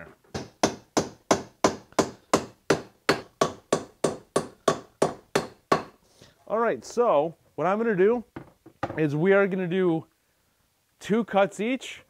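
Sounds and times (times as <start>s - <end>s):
hammer driving nails into wood: 0.3s - 6.0s.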